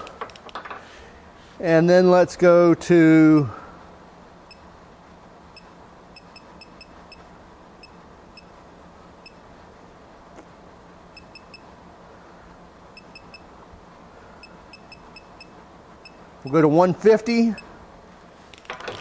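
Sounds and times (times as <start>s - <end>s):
torque wrench beeping: 14.4s - 16.6s.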